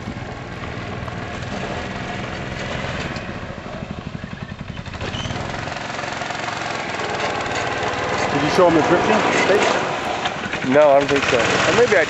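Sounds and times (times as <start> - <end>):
go-kart engine running: 0.0 - 12.0.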